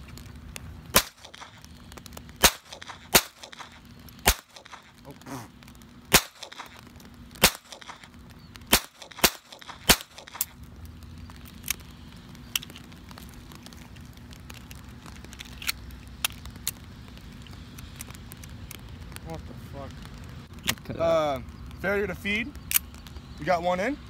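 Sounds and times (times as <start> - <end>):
pistol shots: 0.9 - 1.6, 2.4 - 4.9, 6.1 - 6.8, 7.4 - 8.1, 8.7 - 10.5.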